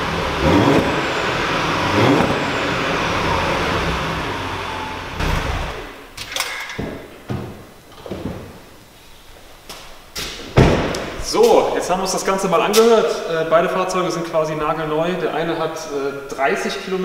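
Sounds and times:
car engine revving: 0:00.0 - 0:06.2
sharp knocks: 0:10.2 - 0:11.6.

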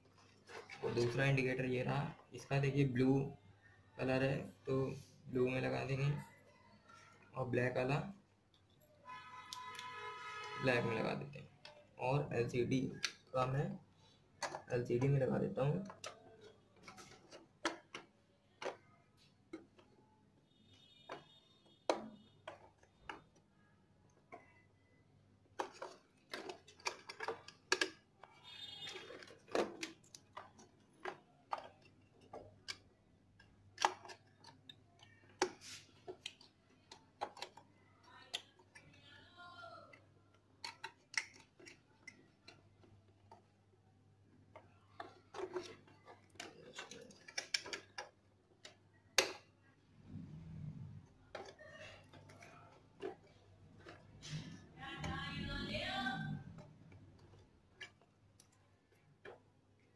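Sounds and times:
plastic housing being handled: 0:14.4 - 0:19.9, 0:25.5 - 0:38.9, 0:44.4 - 0:49.5, 0:51.3 - 0:55.4.

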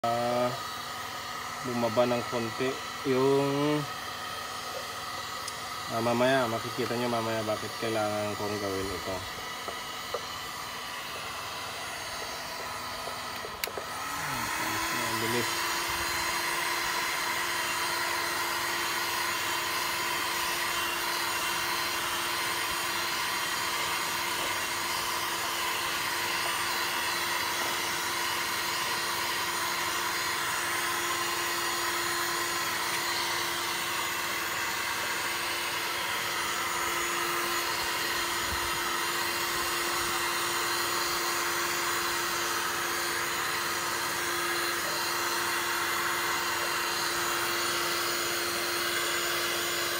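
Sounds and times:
heat gun fan whir: 0:00.0 - 0:49.9.

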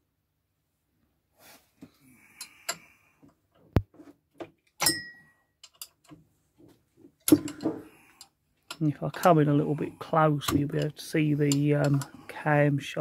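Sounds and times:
ringing metal clank: 0:04.8 - 0:05.2
spanner clicking on metal: 0:05.6 - 0:06.1.

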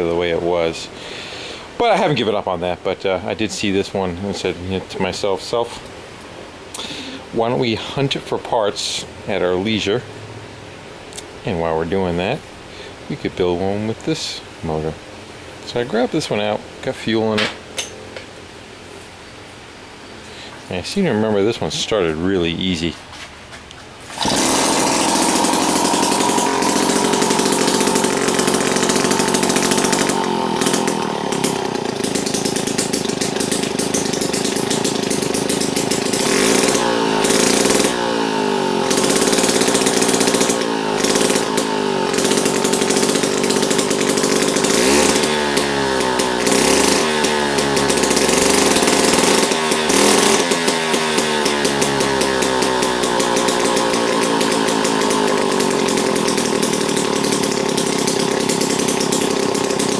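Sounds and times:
small two-stroke engine running: 0:24.1 - 0:59.9.

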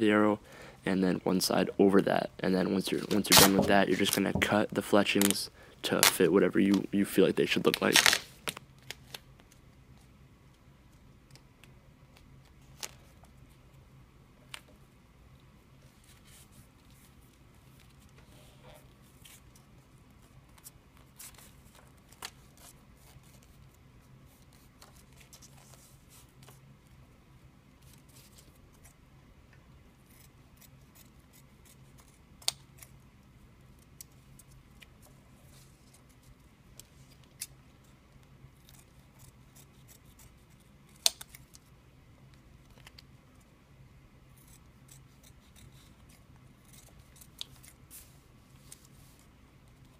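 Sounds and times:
faint steady hum: 0:00.0 - 0:49.9
scissors snipping tape: 0:03.0 - 0:04.2, 0:40.9 - 0:41.6.

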